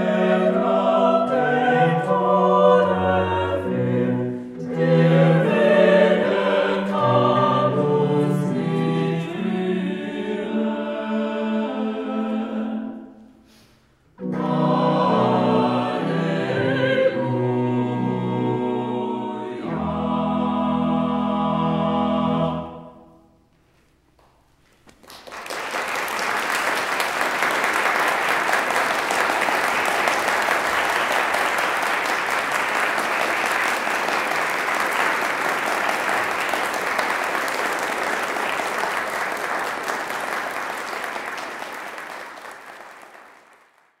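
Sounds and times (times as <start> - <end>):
choir organ and strings chord: 0.0 - 13.4, 14.2 - 23.4
audience applauding: 24.9 - 44.0.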